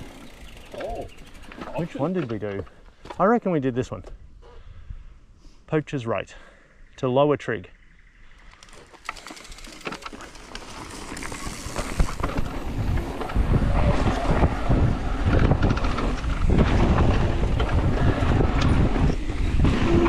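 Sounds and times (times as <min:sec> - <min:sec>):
bike tyres rumbling over dirt: 0:00.0 - 0:02.8, 0:08.6 - 0:20.0
bike clicks and rattles: 0:00.0 - 0:03.2, 0:08.3 - 0:20.0
wind buffeting microphone: 0:10.8 - 0:20.0.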